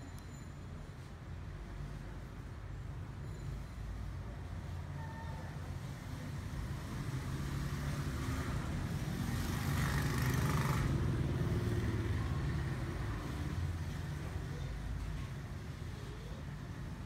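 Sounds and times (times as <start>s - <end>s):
traffic engine hum: 5.8s - 17.0s
vehicle passing close: 6.6s - 13.8s.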